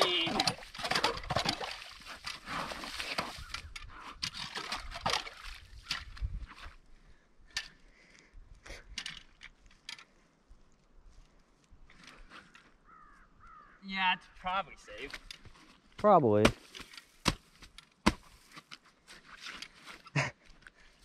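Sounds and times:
water sloshing: 0.0 - 6.3.

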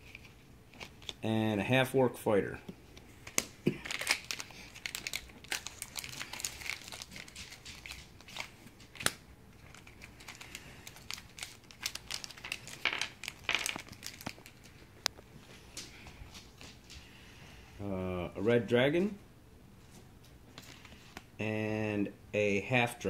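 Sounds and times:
foil pack crinkling and tearing: 3.2 - 14.8.

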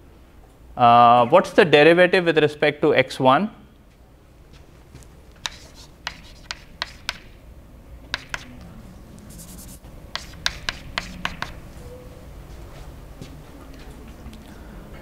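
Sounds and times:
chalk scratching: 5.4 - 7.4, 8.1 - 8.6, 9.3 - 11.6
chalk tapping on blackboard: 5.4 - 7.4, 8.1 - 8.6, 9.3 - 11.6.

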